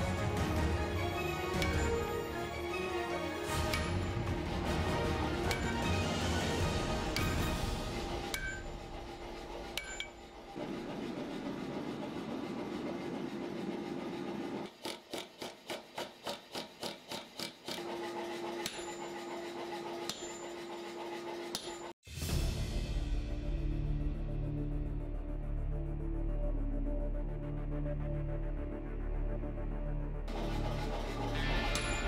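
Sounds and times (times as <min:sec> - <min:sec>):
power hammer striking steel: 0:01.1 - 0:10.3, 0:18.5 - 0:19.3, 0:19.9 - 0:20.7, 0:21.4 - 0:21.9, 0:30.3 - 0:32.0.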